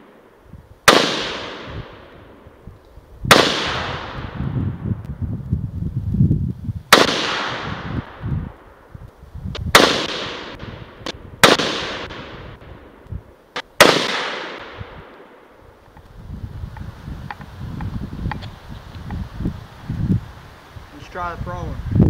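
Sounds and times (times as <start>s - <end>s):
rifle shots with echo: 0.9s - 2.4s, 3.3s - 4.4s, 6.9s - 8.2s, 9.7s - 13.0s, 13.8s - 15.4s.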